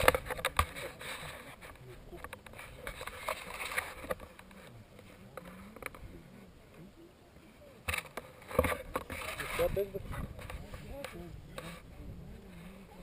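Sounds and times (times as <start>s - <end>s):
clicks and rustles near microphone: 0.0s - 6.9s, 7.8s - 13.0s
distant people talking: 0.0s - 13.0s.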